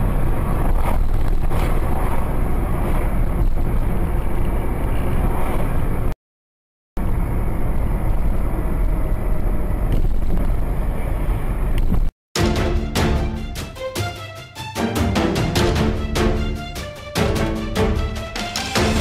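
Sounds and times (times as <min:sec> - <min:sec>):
car engine and road noise: 0:00.0 - 0:06.2, 0:07.0 - 0:13.9.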